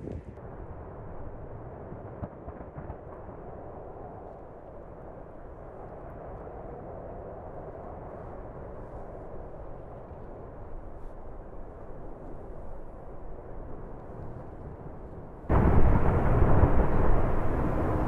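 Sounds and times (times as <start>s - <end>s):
lava fountain low rushing: 15.5s - 18.0s.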